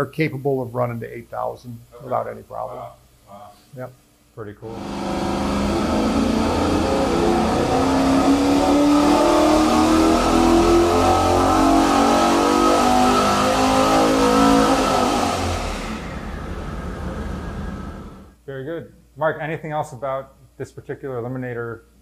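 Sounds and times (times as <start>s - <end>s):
engine running: 4.7s - 18.3s.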